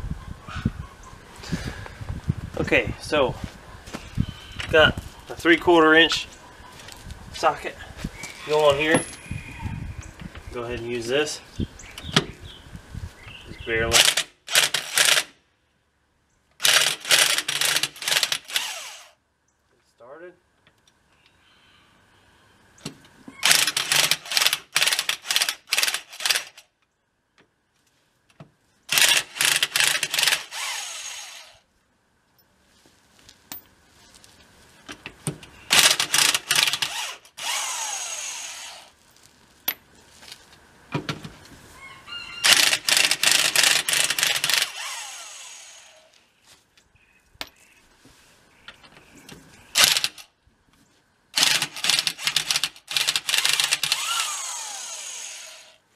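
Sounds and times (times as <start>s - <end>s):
motor whining down: 53.9s - 55.8s.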